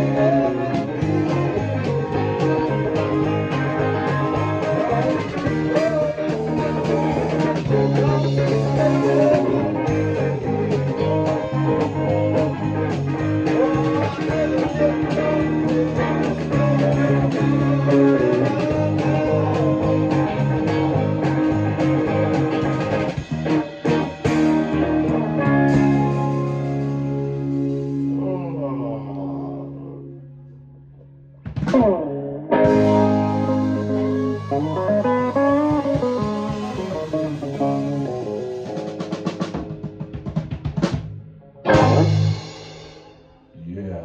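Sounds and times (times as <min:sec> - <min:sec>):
electric bass fingerstyle: 0:00.0 - 0:42.5
guitar: 0:00.0 - 0:44.0
drum hits: 0:38.7 - 0:43.1.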